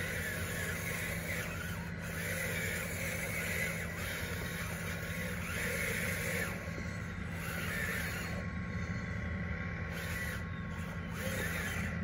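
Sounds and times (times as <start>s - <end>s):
electric motors whining: 0.0s - 12.0s.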